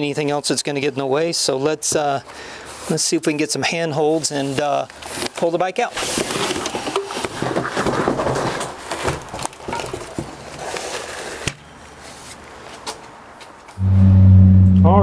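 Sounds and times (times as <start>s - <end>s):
cardboard scraping: 6.0s - 9.3s.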